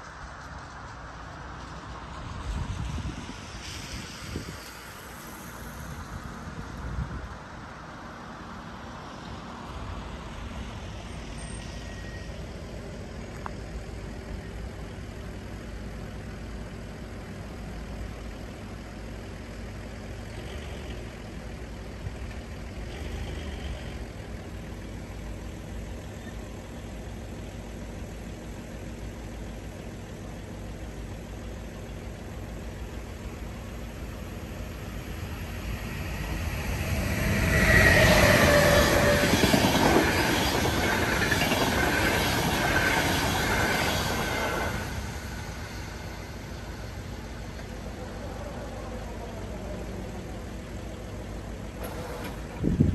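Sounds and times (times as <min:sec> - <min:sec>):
truck engine idling: 0:12.4 - 0:39.3.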